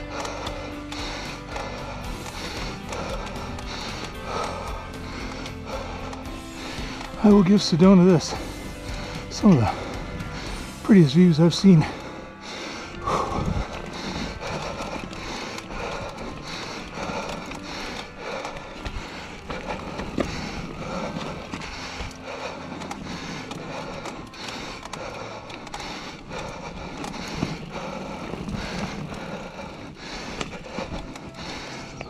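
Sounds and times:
bike rattling: 0.0s - 32.0s
tyres crunching over stones: 13.0s - 32.0s
bike knocking on rocks: 17.3s - 22.1s.

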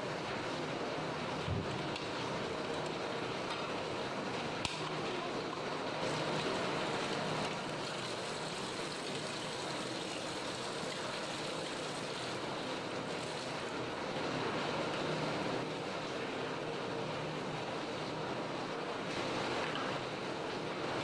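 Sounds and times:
water running from tap into sink: 6.2s - 13.6s.

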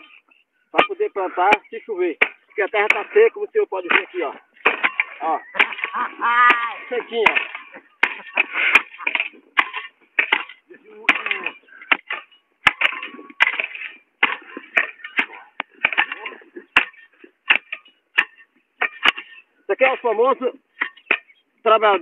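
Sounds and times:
man speaking: 0.7s - 4.4s, 5.1s - 7.8s, 10.7s - 11.7s, 19.7s - 20.6s, 21.6s - 22.0s
hoe chopping and scraping soil: 0.8s - 21.4s.

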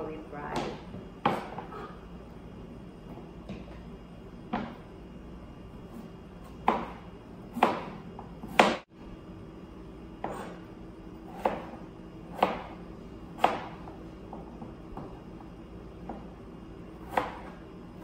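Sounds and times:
knife slicing potato: 0.5s - 1.9s, 5.9s - 8.8s, 11.2s - 12.7s, 13.3s - 13.9s, 17.0s - 17.6s.

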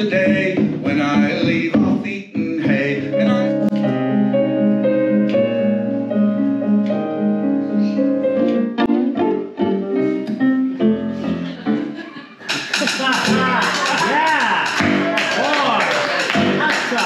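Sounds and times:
piano melody over chords: 2.8s - 12.2s.

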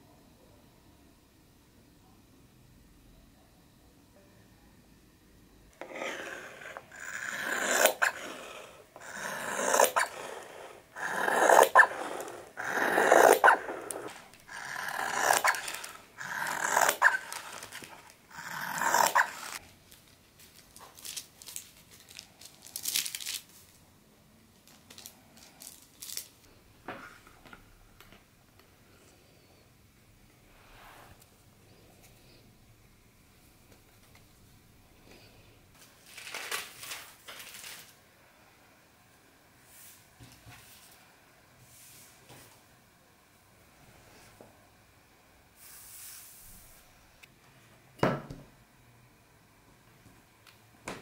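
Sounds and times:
shears cutting fabric: 5.8s - 19.6s.

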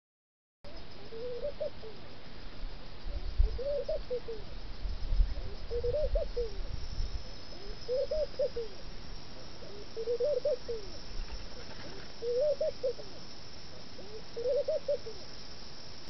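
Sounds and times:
dove cooing: 0.7s - 2.0s, 3.1s - 4.5s, 5.3s - 8.8s, 9.4s - 15.4s.

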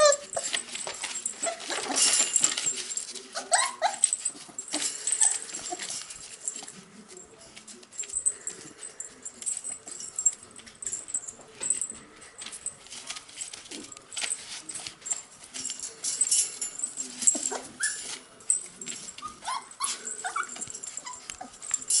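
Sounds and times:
puppies whimpering and yipping: 0.0s - 0.6s, 3.3s - 6.1s, 17.3s - 18.2s, 19.1s - 21.8s
paws scrabbling on newspaper: 0.0s - 22.0s.

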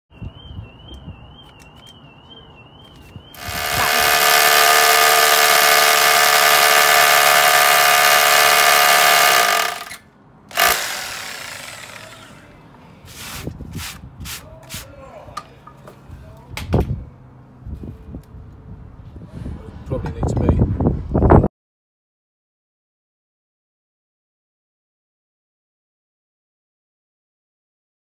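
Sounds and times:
hammer drill boring into concrete: 3.4s - 12.4s.

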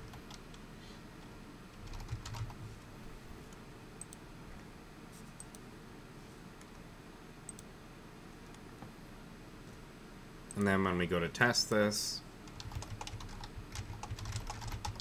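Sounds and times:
keyboard typing: 0.0s - 0.6s, 1.8s - 2.7s, 12.5s - 15.0s.

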